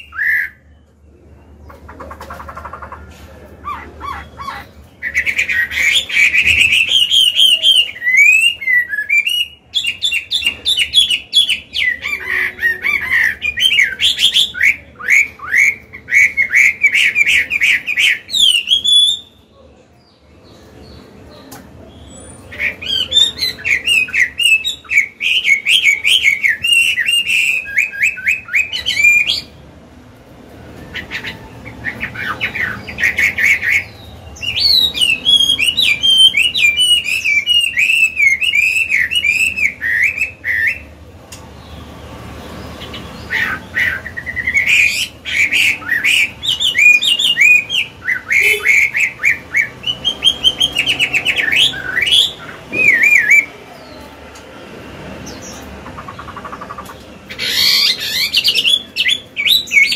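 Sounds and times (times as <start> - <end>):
bird singing whistles and trills: 0.0 - 1.0, 4.1 - 19.5, 22.0 - 29.6, 31.0 - 40.9, 42.8 - 53.9, 57.3 - 59.9.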